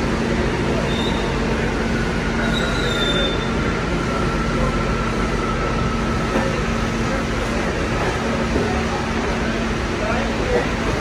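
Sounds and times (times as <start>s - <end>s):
subway train rumbling: 0.0s - 11.0s
high wheel squeal: 0.8s - 1.4s, 2.4s - 3.7s.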